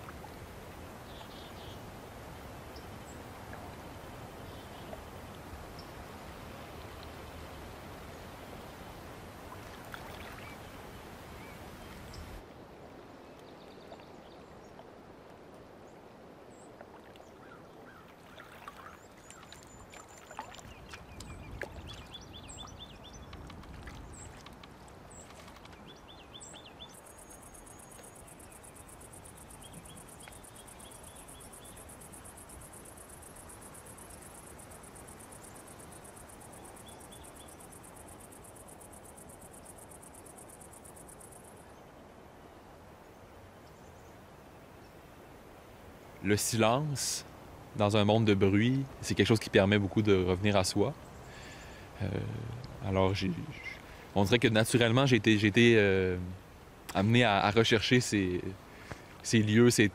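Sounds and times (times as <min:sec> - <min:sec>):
soft hiss: 0:00.0 - 0:59.9
crickets trilling: 0:25.1 - 0:41.7.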